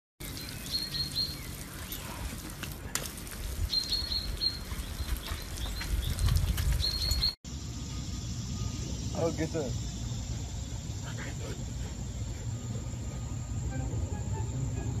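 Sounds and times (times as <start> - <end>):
hose nozzle spraying water: 0.3 - 6.5.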